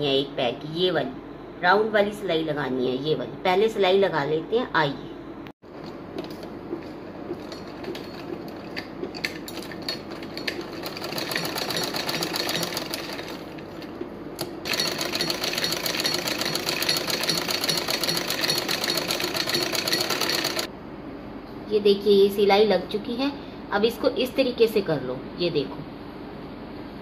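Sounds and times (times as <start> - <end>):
sewing machine stitching: 9.2 - 13.7, 14.6 - 20.7.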